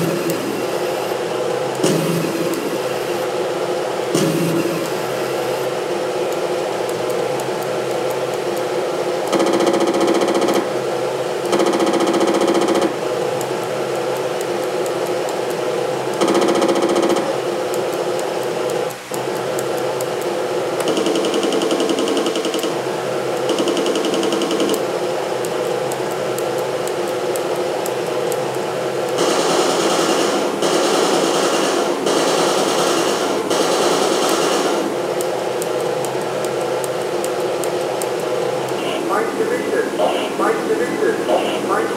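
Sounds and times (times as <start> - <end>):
tank engine sound through speaker: 38.7 - 41.9.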